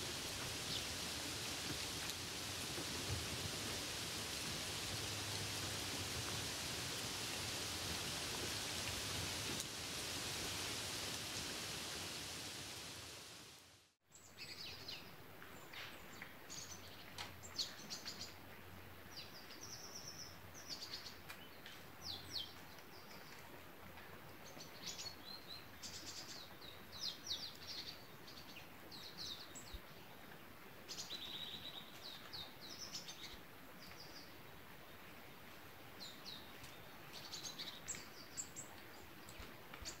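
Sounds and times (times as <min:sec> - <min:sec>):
light rain hiss: 0:00.0 - 0:40.0.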